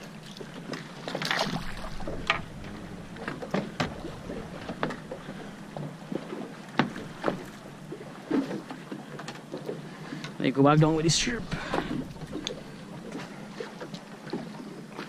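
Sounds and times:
low background hum: 0.0 - 15.0
water splashing: 0.0 - 15.0
knocks on boat: 1.2 - 6.0, 6.8 - 7.7.

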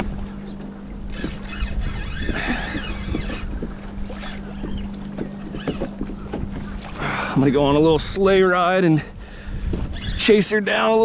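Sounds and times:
water slapping against kayak hull: 0.0 - 7.8
wind on microphone: 0.0 - 11.0.

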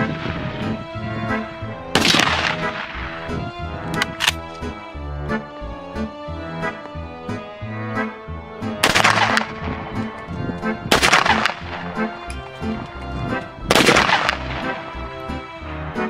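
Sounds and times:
background music: 0.0 - 16.0
rifle shots: 1.9 - 3.1, 8.8 - 9.8, 10.9 - 12.2, 13.7 - 14.9.

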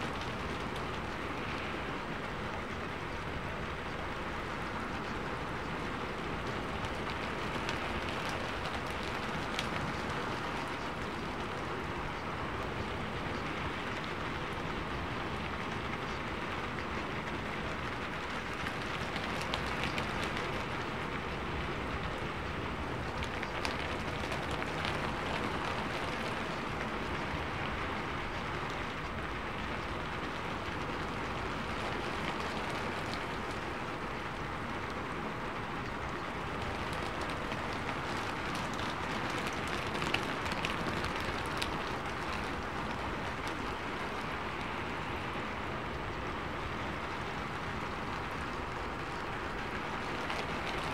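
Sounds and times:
rain-like hiss: 0.0 - 50.9.

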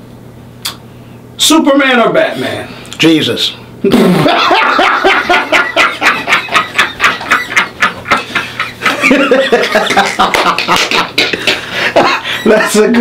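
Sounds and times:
people laughing heartily: 3.9 - 13.0.

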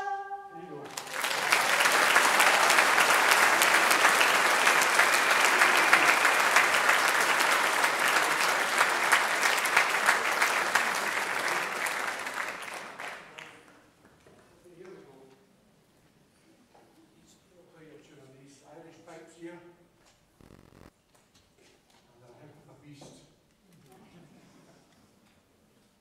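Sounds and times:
audience applauding: 0.9 - 13.8.

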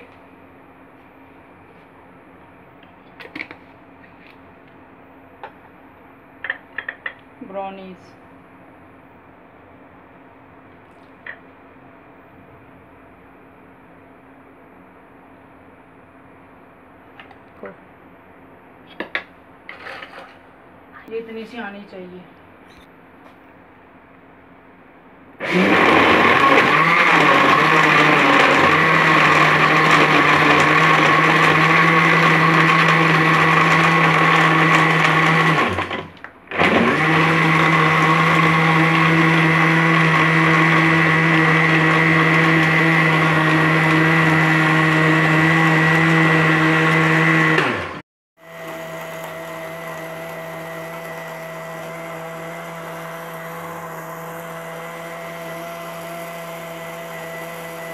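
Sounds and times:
electric blender running: 25.4 - 57.9.

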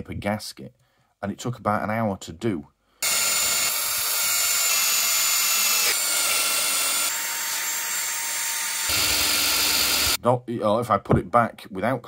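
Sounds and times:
drill with wire brush scrubbing metal: 3.0 - 10.2.

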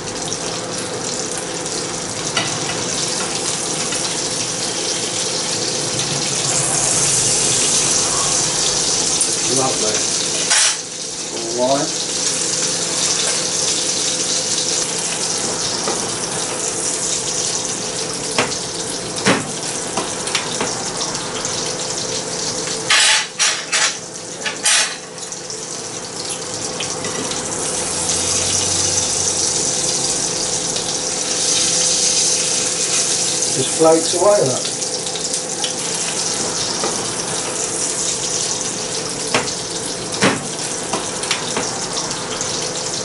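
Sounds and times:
fish sizzling in butter: 0.0 - 43.0.

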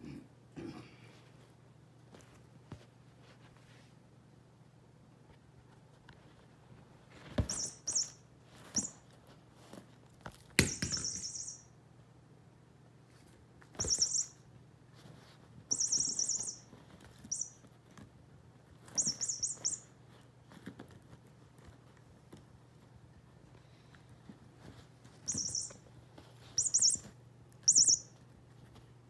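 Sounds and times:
toy ball jingling: 7.5 - 8.2, 10.7 - 11.7, 13.8 - 14.4, 15.7 - 16.7, 17.3 - 17.6, 19.0 - 19.9, 25.3 - 25.8, 26.6 - 27.0, 27.7 - 28.1.

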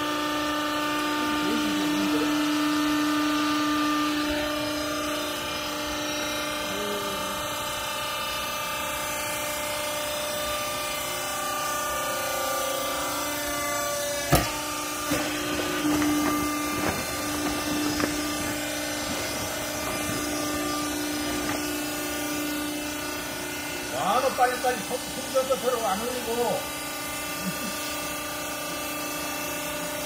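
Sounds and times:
hydraulic power unit humming: 0.0 - 30.0.

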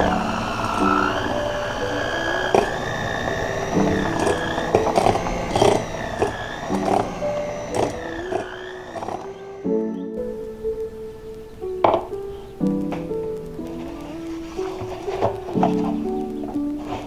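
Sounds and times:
electric hand mixer whine: 0.0 - 10.0, 13.7 - 17.0
beaters clicking against bowl: 3.7 - 9.3.

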